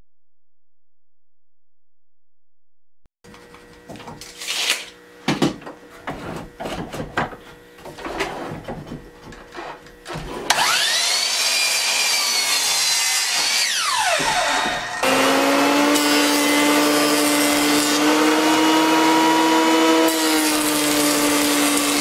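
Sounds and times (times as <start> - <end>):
miter saw motor whining: 10.5 - 22.0.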